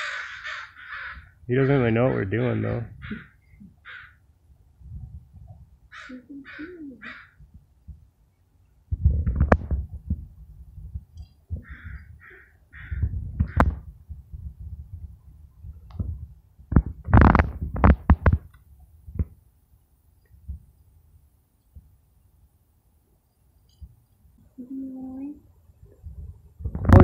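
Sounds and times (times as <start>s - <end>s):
crows cawing: 0.0s - 1.4s, 3.0s - 4.2s, 5.9s - 7.4s, 11.6s - 13.6s
rumbles and knocks on microphone: 8.9s - 11.7s, 12.9s - 14.8s, 15.8s - 18.5s, 26.6s - 27.0s.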